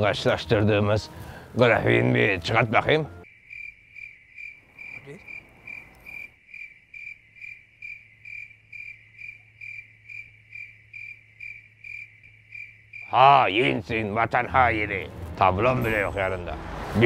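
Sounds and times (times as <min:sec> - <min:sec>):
crickets chirping: 0:03.2 - 0:16.1.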